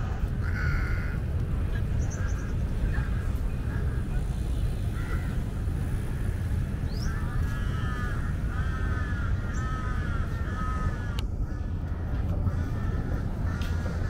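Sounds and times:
bird calling: 6.9s - 11.6s.

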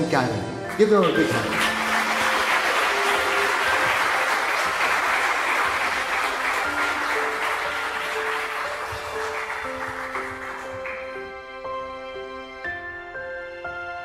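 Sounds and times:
congregation applauding: 0.6s - 11.5s.

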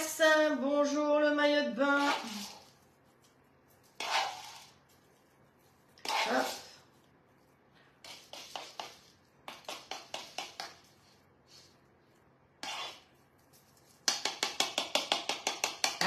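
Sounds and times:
spoon tapping against cup: 14.1s - 16.0s.

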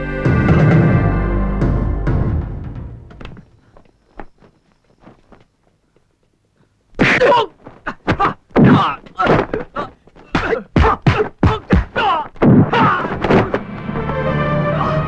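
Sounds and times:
film score music: 0.0s - 3.3s, 13.1s - 15.0s.

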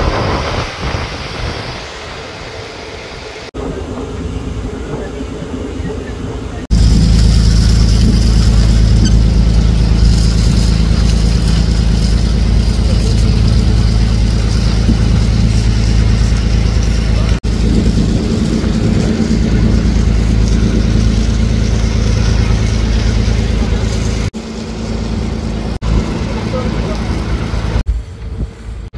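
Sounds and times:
boat diesel engine droning: 0.0s - 28.9s.

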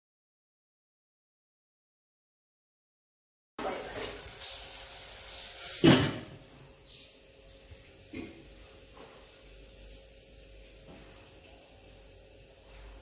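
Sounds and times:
food sizzling in hot oil: 3.6s - 13.0s
kitchen utensils clattering: 5.4s - 6.5s.

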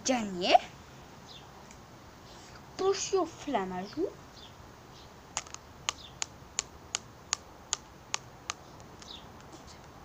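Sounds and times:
plastic figurines clacking together: 5.4s - 6.3s.

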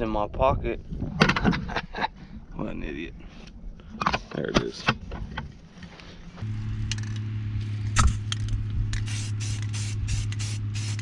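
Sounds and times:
steady low hum: 4.7s - 11.0s
spray paint can hissing: 8.9s - 11.0s.

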